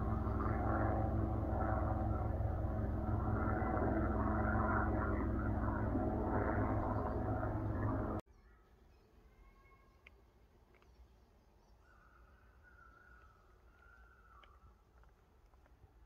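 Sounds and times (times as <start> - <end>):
low engine drone: 0.0 - 8.2.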